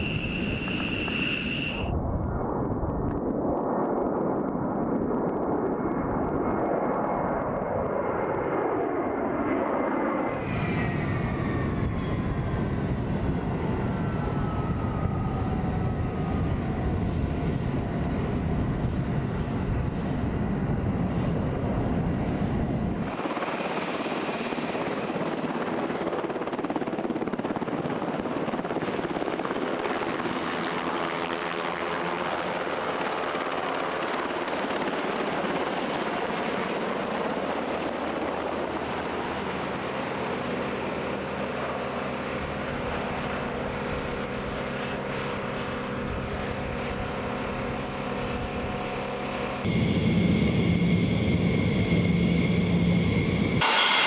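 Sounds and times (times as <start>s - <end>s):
jet engines winding down: 0.0s - 1.9s, 47.7s - 54.0s
jet passing overhead: 0.0s - 26.7s, 42.4s - 54.0s
helicopter turbines and rotor: 0.0s - 54.0s.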